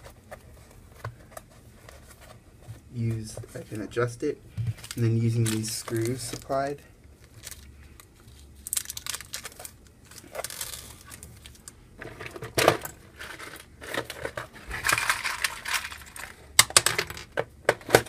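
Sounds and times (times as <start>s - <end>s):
plastic bag crinkling: 4.7s - 11.7s.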